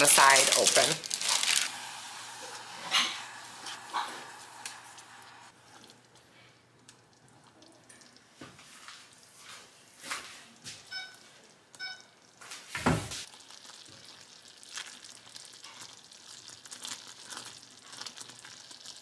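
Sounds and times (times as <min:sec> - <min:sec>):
fudge boiling and bubbling: 0:00.0 - 0:12.5, 0:13.2 - 0:19.0
short high beeps: 0:11.8 - 0:12.1.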